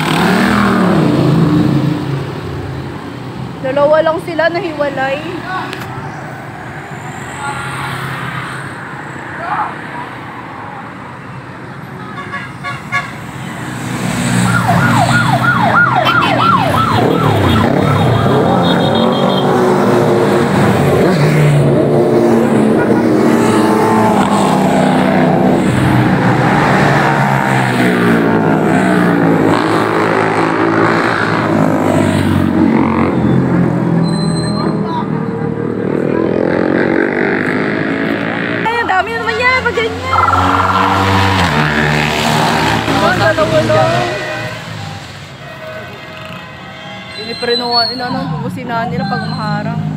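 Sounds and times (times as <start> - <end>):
vehicles passing close by: 0.0 - 49.9
siren whooping: 14.3 - 19.3, 39.9 - 41.7.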